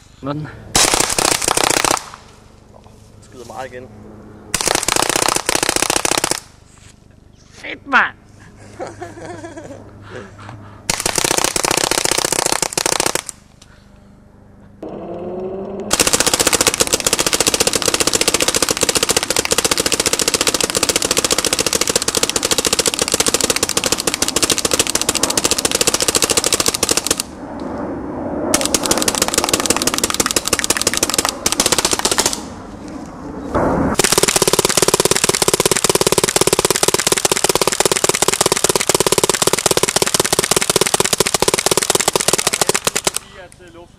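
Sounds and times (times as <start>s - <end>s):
paintball marker rapid firing: 0.8s - 2.2s, 4.6s - 6.6s, 10.9s - 13.4s, 15.9s - 27.3s, 28.6s - 32.5s, 34.0s - 43.2s.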